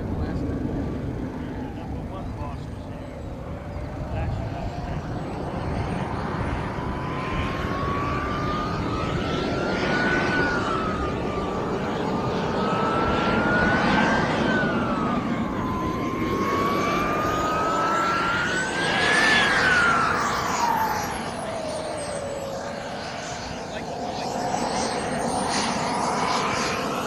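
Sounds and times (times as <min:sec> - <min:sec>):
model jet engine whining: 0:00.0 - 0:27.0.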